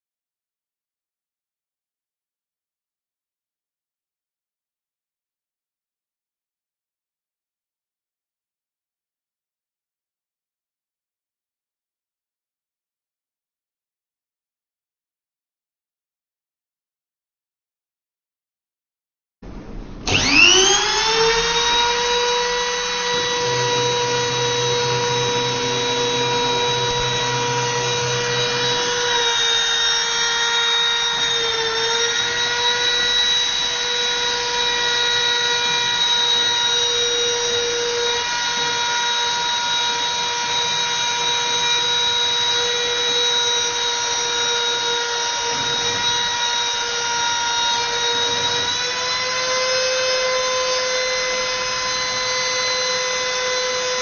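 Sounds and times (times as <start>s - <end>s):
rotary tool high whine: 20.0s - 54.0s.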